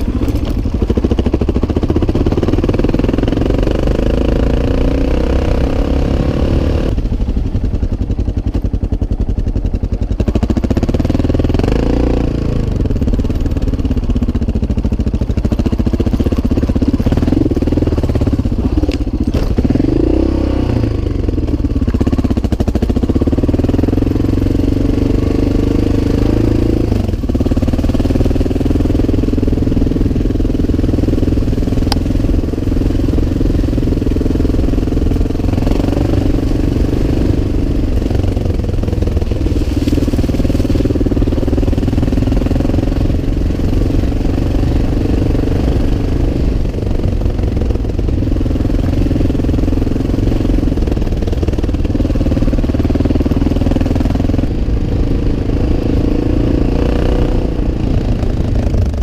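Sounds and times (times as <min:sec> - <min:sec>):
motorcycle engine revving: 0:00.0 - 0:59.0.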